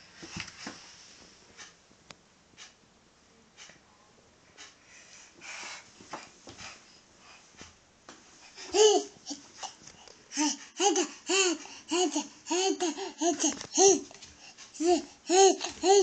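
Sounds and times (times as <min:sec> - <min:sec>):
toddler laughing and babbling: 0:08.5 - 0:16.0.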